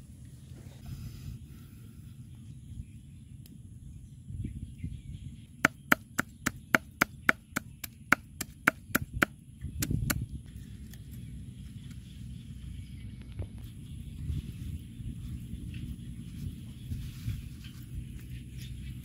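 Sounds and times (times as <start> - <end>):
cleaver chopping on wooden block: 5.6 - 10.2.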